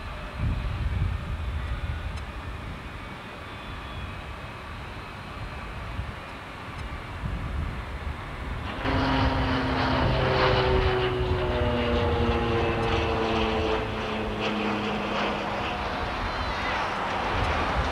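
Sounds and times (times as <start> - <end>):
jet engines whining and rushing: 0.0 - 17.9.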